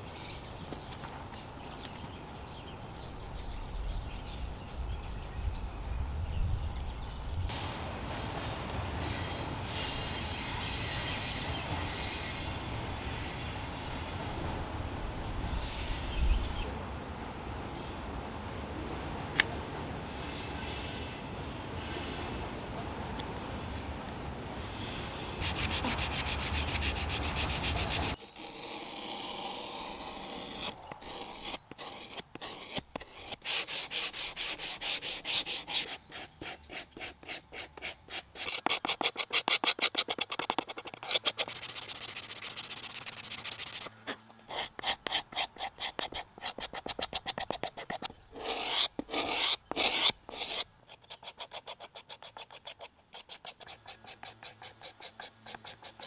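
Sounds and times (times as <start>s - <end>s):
hand sanding wood: 25.4s - 56.0s.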